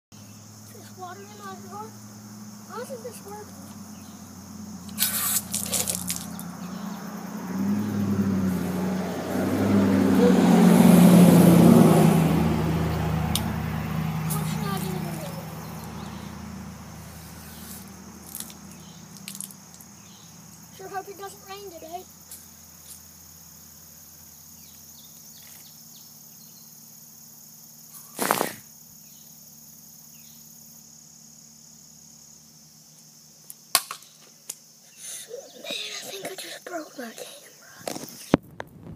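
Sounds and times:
insects chorus: 0.1 - 38.9
steady low hum: 0.2 - 20.7
garden hose spray blast: 4.8 - 6.4, 14.2 - 15.4, 17.0 - 18.5, 28.0 - 28.7
vehicle driving past: 5.9 - 19.1.

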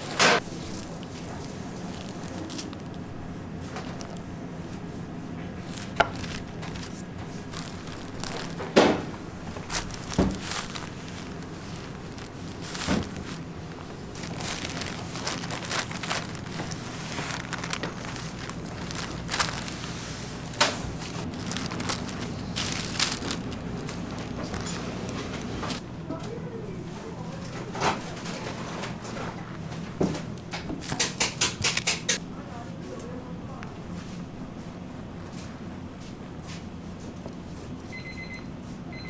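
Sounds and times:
paper rustling and crinkling: 0.0 - 25.8
steady low hum: 0.0 - 27.5.

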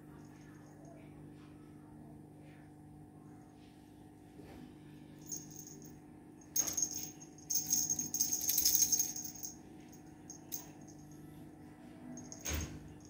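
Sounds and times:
cat toy rattling and jingling: 5.3 - 5.9, 6.6 - 11.1.

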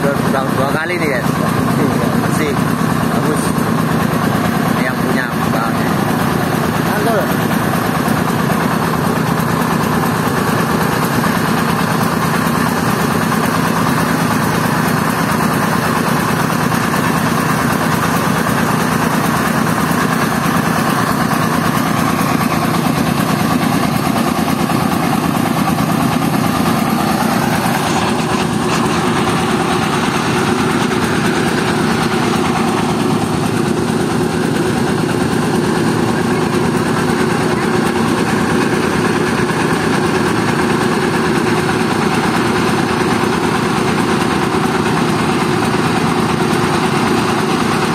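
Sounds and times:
diesel engine running: 0.0 - 47.9
rice milling machinery: 0.0 - 47.9.

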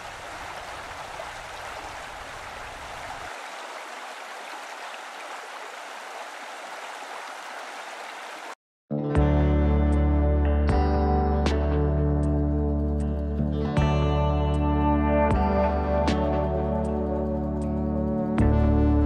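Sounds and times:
water splashing into pool: 0.0 - 8.6.

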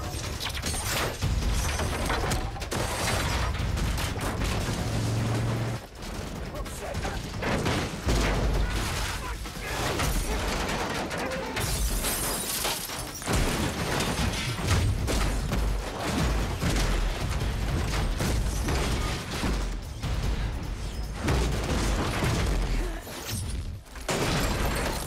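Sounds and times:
debris tumbling: 0.0 - 25.0
loud shattering rush: 8.6 - 15.4.

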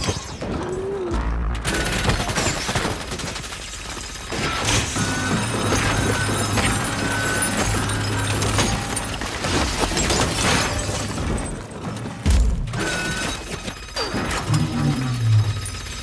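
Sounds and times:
crashing and shattering debris: 0.0 - 16.0
metallic mechanical clanks: 4.4 - 16.0.

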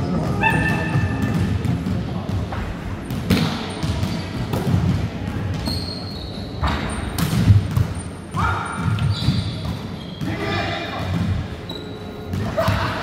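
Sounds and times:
volleyball hits and thuds: 0.2 - 5.7, 6.6 - 10.4
shoes squeaking on floor: 5.6 - 7.2, 7.9 - 10.7, 11.6 - 12.3.

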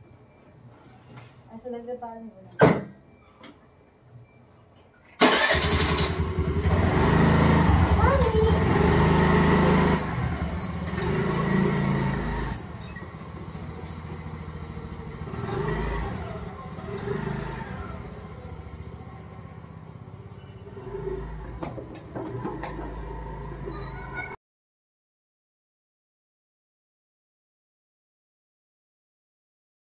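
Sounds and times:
motor scooter engine running: 5.3 - 24.3.

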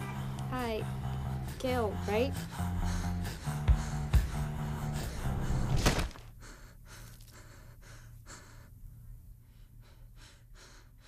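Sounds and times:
background music with low notes: 0.0 - 6.2
person breathing quickly: 0.0 - 11.0.

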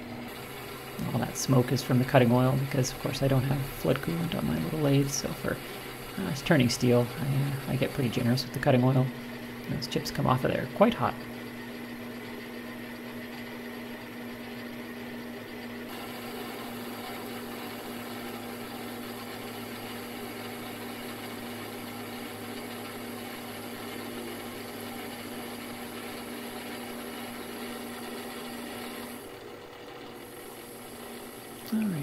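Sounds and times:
lathe motor hum: 0.0 - 32.0
cutting tool hiss: 0.3 - 10.3.

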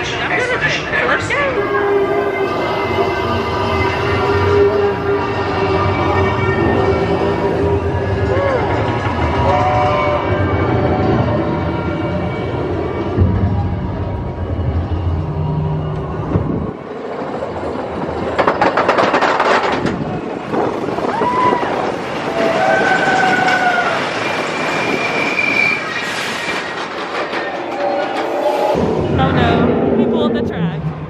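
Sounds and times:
roller coaster rush and clatter: 0.0 - 31.0
high squealing tones: 0.9 - 16.8, 21.0 - 30.3.

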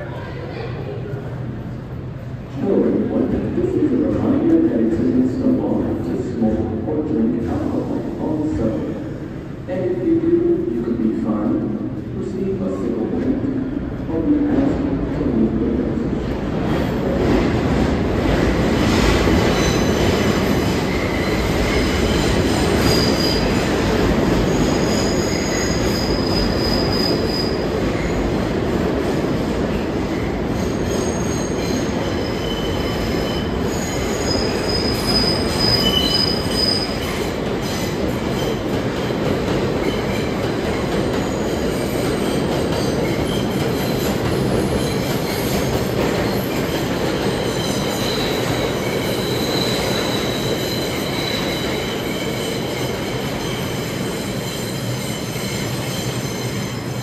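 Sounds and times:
subway trains rumbling: 0.0 - 57.0
metallic wheel squeal: 31.0 - 36.9.

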